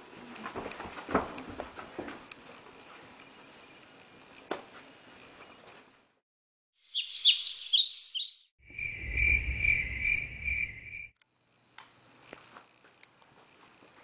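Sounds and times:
high bird chirps: 6.8s - 11.1s
crickets chirping: 8.6s - 11.1s.

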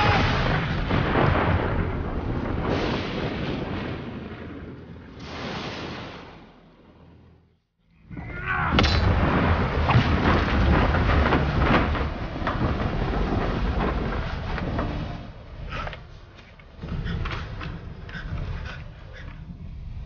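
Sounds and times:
storm rushing and rumbling: 0.0s - 20.0s
sharp cracks and crashes: 8.7s - 15.6s.

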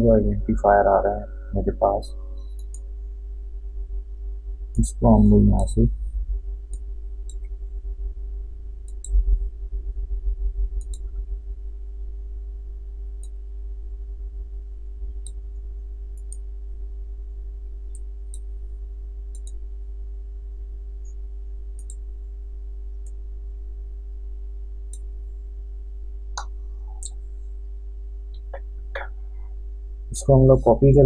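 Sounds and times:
low electrical hum: 0.0s - 31.0s
computer mouse clicks: 8.9s - 9.2s, 10.8s - 11.1s, 16.2s - 16.4s, 19.3s - 19.6s, 21.8s - 22.0s.

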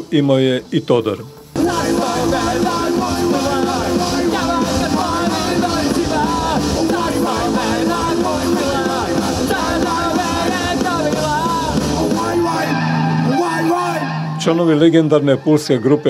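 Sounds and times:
live rock band playing: 1.5s - 14.4s
person singing: 1.6s - 14.1s.

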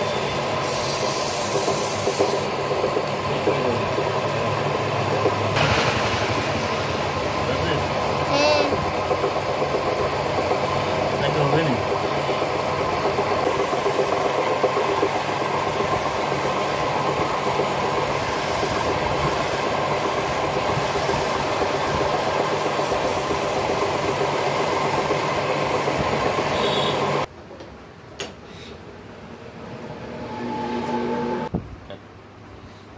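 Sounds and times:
wood lathe running: 0.7s - 27.3s.

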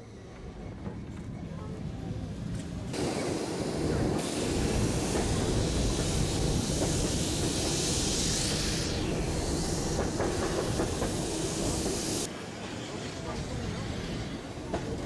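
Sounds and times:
tram wheels rumbling on rails: 0.0s - 15.0s
rushing air: 3.0s - 12.3s.

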